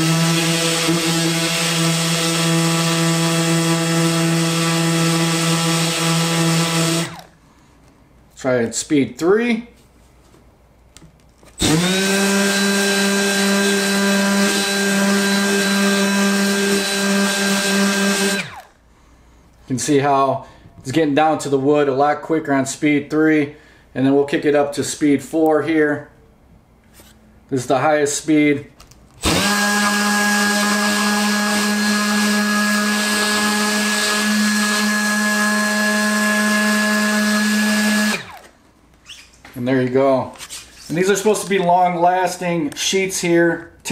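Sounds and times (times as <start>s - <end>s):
electric sander motor running: 0.0s - 7.3s, 11.6s - 18.7s, 29.2s - 38.5s.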